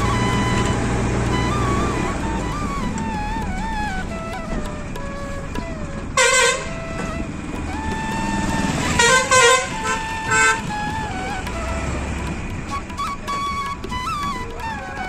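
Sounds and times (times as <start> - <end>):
bus rumbling: 0.0 - 15.0
vehicle horn honking: 6.2 - 6.7, 9.0 - 10.6.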